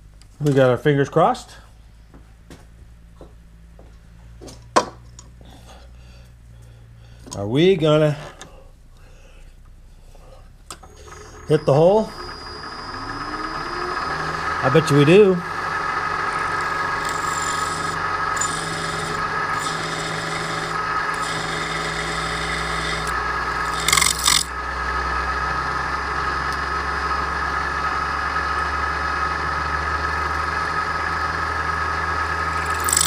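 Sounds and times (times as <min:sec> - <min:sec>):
drill bit cutting metal tube: 0:16.3 - 0:24.5, 0:32.5 - 0:33.0.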